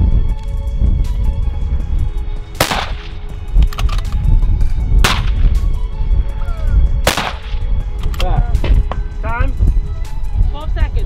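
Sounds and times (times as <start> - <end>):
background music with steady beat: 0.0 - 11.0
rifle shots with echo: 2.6 - 3.2, 5.0 - 5.6, 7.0 - 7.6.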